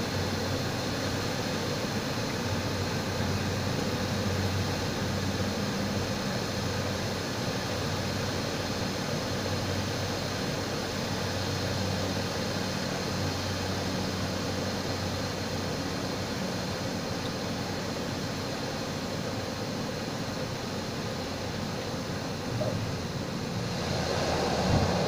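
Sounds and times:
turboprop engine and propeller: 0.0s - 25.0s
rush of air: 22.4s - 25.0s.

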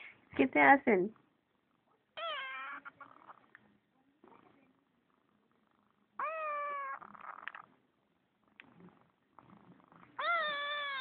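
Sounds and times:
kitten meowing: 2.2s - 3.0s, 6.2s - 7.2s, 10.2s - 11.0s.

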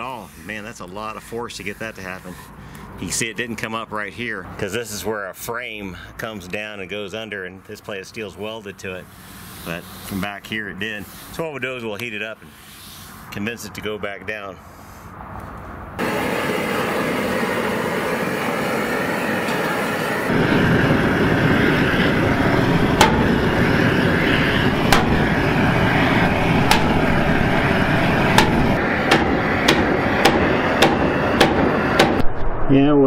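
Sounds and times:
propane torch burning: 9.0s - 10.3s, 16.0s - 32.2s
hammer blows on hot steel: 16.0s - 32.3s.

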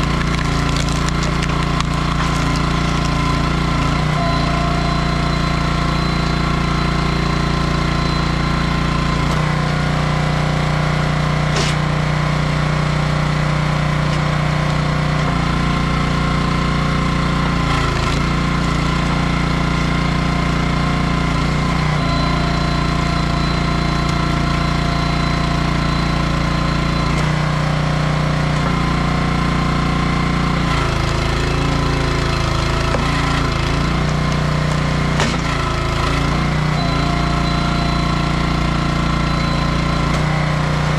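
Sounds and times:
sharp crack of splitting wood: 0.0s - 4.1s, 11.5s - 12.0s, 30.7s - 36.2s
small gas engine running: 0.0s - 40.9s.

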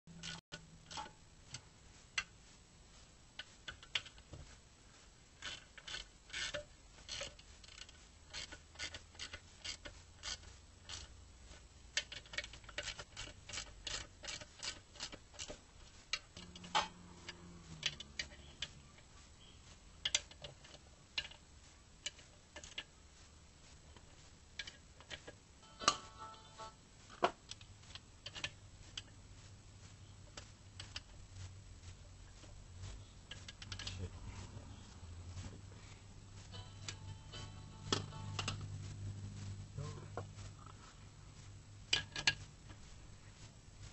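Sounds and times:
ratchet wrench clicking: 5.4s - 11.1s, 12.0s - 18.8s.

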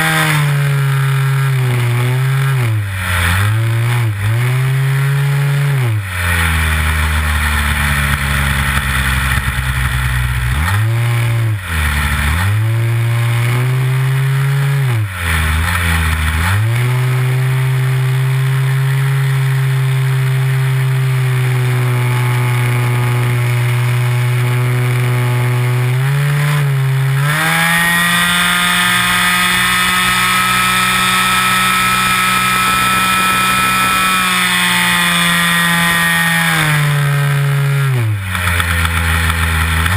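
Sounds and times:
model airplane engine running: 6.0s - 10.6s, 26.8s - 39.9s.

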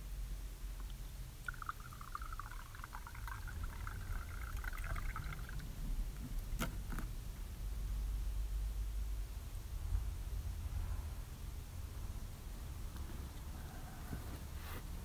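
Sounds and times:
liquid pouring into container: 0.8s - 6.6s.

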